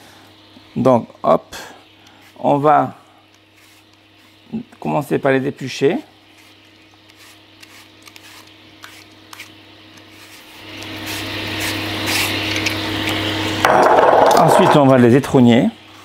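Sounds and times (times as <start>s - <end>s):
peeler scraping apple: 3.4s - 4.6s, 6.3s - 13.3s.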